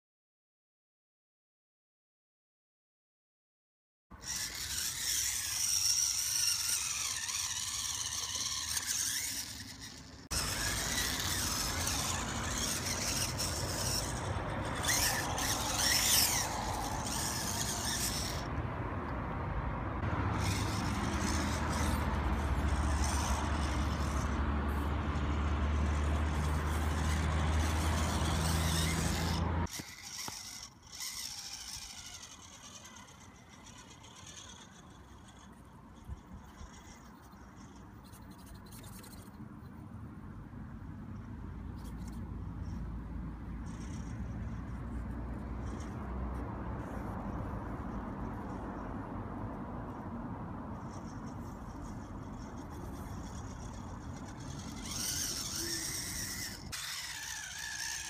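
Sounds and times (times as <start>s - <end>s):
electric motor and gears whining: 4.1s - 19.2s, 20.0s - 39.4s, 41.7s - 48.9s, 49.5s - 58.0s
tyres scraping on stone: 4.2s - 18.5s, 20.4s - 35.6s, 51.0s - 58.0s.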